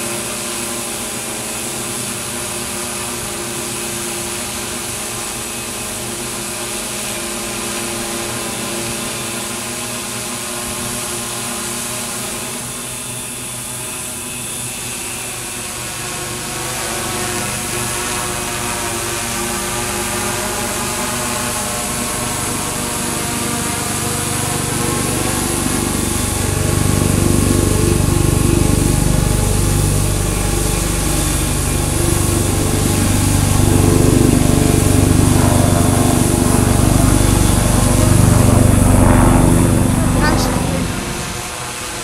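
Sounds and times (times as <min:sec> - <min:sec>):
drone propellers humming: 0:00.0 - 0:42.0.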